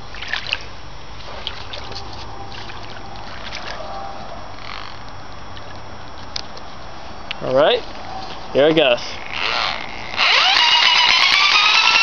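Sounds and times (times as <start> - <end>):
creek water trickling over rocks: 0.0 - 3.9.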